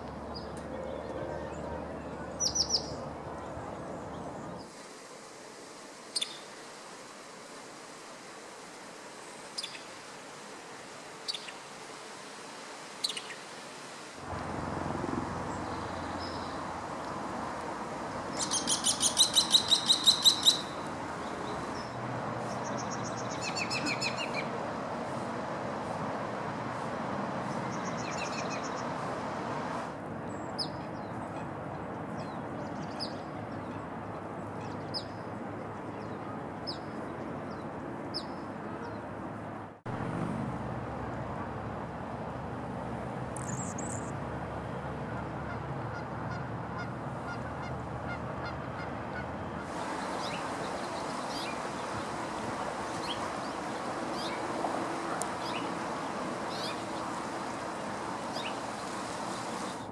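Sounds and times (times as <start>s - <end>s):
sharp bird chip calls: 18.4s - 20.8s, 43.4s - 44.1s.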